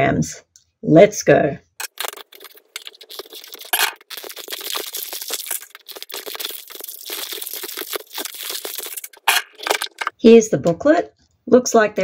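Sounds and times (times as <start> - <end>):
plastic wrapping crinkling: 1.8 - 10.1.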